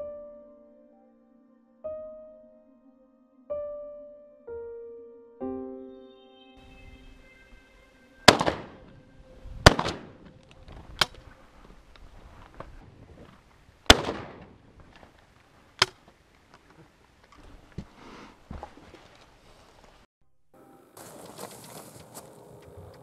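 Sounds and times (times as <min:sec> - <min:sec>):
shotgun shots: 0:08.3 - 0:09.0, 0:09.6 - 0:10.3, 0:13.9 - 0:14.6.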